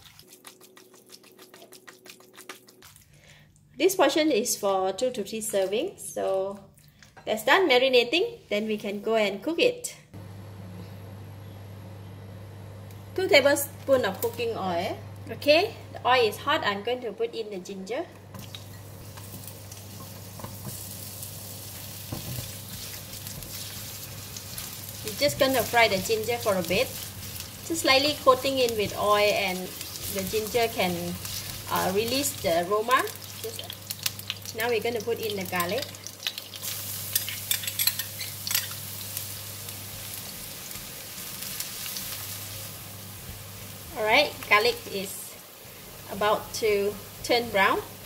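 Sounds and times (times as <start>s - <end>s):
ginger sizzling in hot oil: 0.0s - 2.9s, 18.3s - 48.0s.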